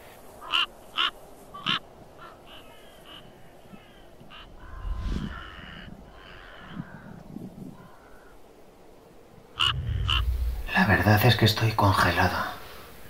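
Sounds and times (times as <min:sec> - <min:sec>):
crows cawing: 0:00.3 - 0:08.5, 0:09.6 - 0:10.7
low rumble: 0:04.6 - 0:06.2, 0:09.6 - 0:11.4.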